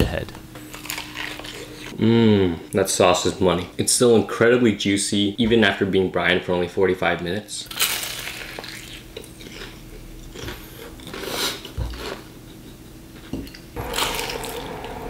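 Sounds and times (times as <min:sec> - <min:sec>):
crunching fried chicken bites: 0:07.7 - 0:12.2.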